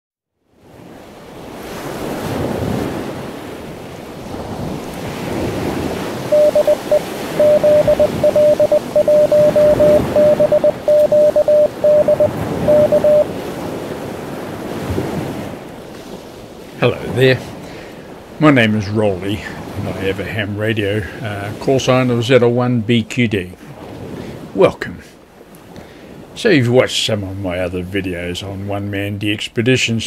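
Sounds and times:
ocean surf: 0.6 - 22.2
morse code tone: 6.3 - 13.3.

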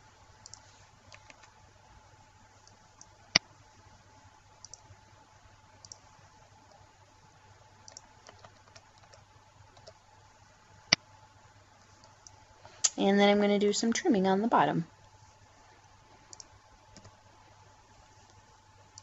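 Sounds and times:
faint steady hum: 0.0 - 19.0
computer mouse clicking: 0.4 - 1.6, 4.6 - 4.9, 5.8 - 6.8, 7.8 - 10.0, 12.0 - 13.0, 16.3 - 17.2, 18.2 - 19.0.

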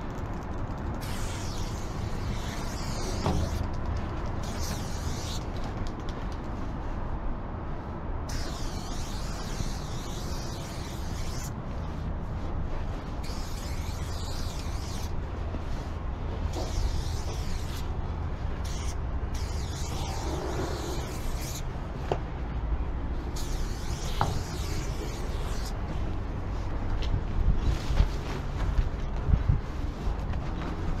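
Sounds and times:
spray-paint can hissing: 1.0 - 3.7, 4.3 - 5.6, 8.3 - 11.6, 13.2 - 15.1, 16.5 - 17.9, 18.6 - 21.6, 23.4 - 25.8.

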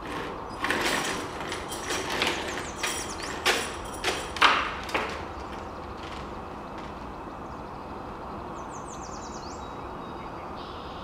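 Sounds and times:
sharp knocks and clatters: 0.0 - 7.4
distant traffic hum: 0.0 - 11.0.

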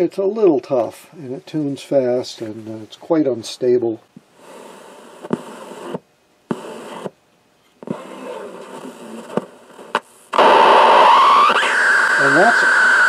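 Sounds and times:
hissy radio audio: 0.8 - 7.2, 7.8 - 13.0
radio click: 4.1 - 7.2, 7.8 - 11.8.

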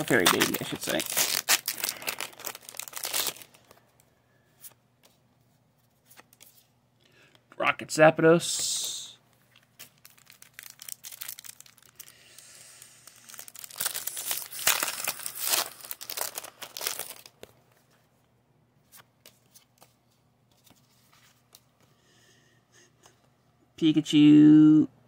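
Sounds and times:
foil wrapper crinkling and tearing: 0.0 - 3.8, 9.7 - 17.5.

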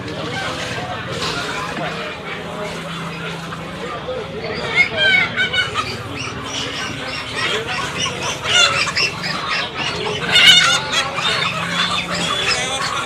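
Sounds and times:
chickens clucking: 0.0 - 13.0
loud chicken call: 2.6 - 13.0.

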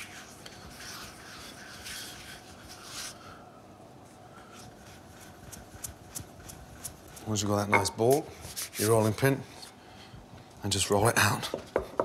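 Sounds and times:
hands rubbing dough on a board: 0.0 - 3.4, 4.4 - 9.2.

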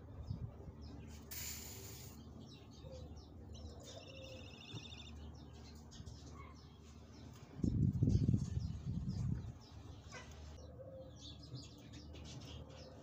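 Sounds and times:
low outdoor hum: 0.0 - 13.0
small birds chirping: 0.0 - 13.0
short hiss: 1.3 - 2.2.

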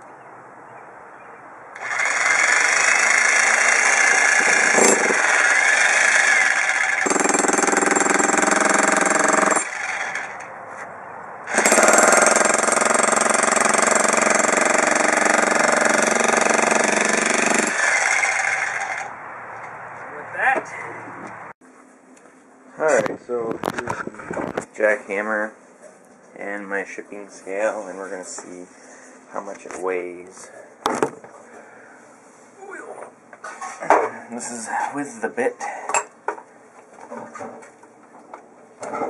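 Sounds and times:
demolition hammer pounding concrete: 1.8 - 9.8, 11.5 - 19.0.

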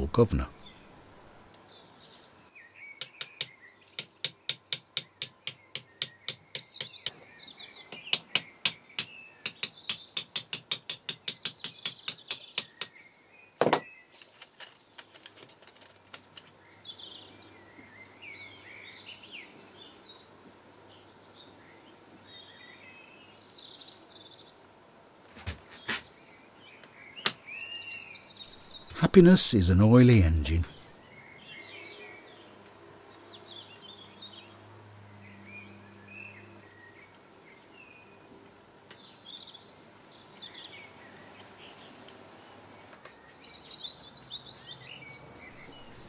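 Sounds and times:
birds chirping: 0.0 - 15.1, 15.8 - 24.6, 25.6 - 34.6, 35.2 - 46.0
sharp metallic clicks: 3.0 - 7.1, 7.9 - 12.9.

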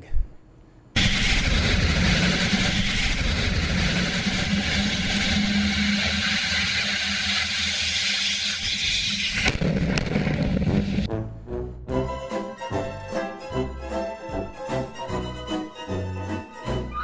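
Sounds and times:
rocket engine roaring: 1.0 - 11.1
sharp cracks: 1.0 - 11.1.

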